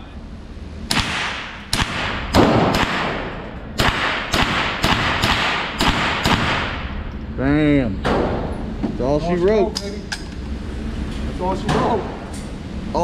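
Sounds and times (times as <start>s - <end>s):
gunshots with echo: 0.9s - 7.0s.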